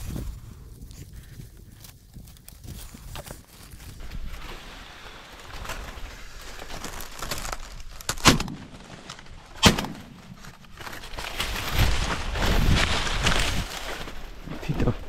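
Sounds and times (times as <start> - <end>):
dry leaves rustling: 0.0 - 15.0
shotgun shots with echo: 9.6 - 10.2.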